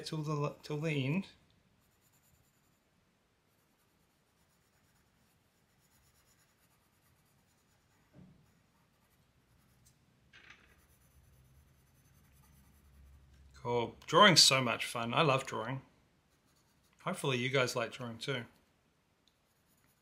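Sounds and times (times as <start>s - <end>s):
pencil scratching on paper: 1.8s - 2.8s, 3.5s - 9.8s, 10.7s - 13.3s, 16.3s - 17.1s, 19.4s - 20.0s.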